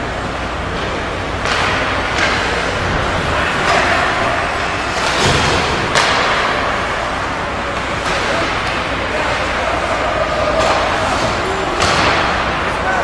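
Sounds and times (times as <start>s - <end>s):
steady rink hum: 0.0s - 13.0s
skates and sticks knocking on ice: 1.4s - 12.7s.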